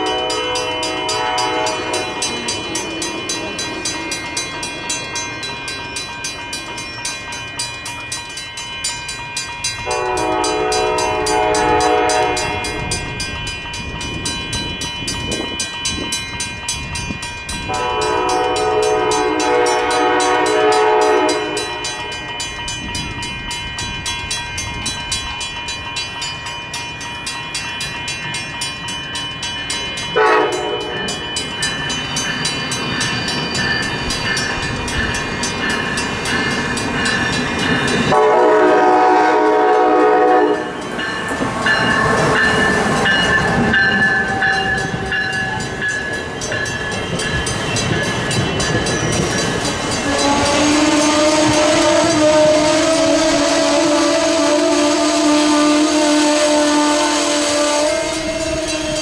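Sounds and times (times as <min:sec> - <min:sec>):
train horn blasts: 0:00.0 - 0:02.7, 0:09.8 - 0:13.2, 0:17.7 - 0:22.1, 0:30.2 - 0:31.1, 0:38.1 - 0:40.9, 0:50.0 - 0:59.0
train rumbling on tracks: 0:00.0 - 0:59.0.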